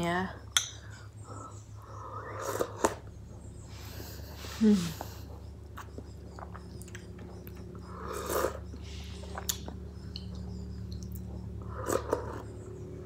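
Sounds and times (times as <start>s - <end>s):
steady low hum: 0.0s - 13.0s
chewing with mouth closed: 5.3s - 12.6s.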